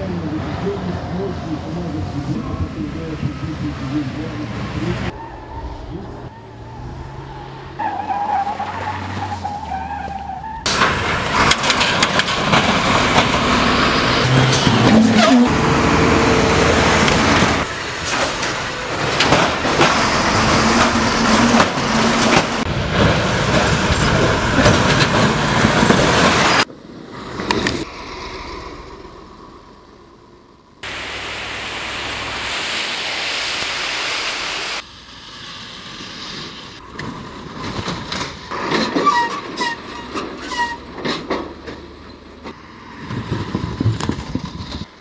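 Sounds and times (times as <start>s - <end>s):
truck engine driving by: 0.0s - 32.6s.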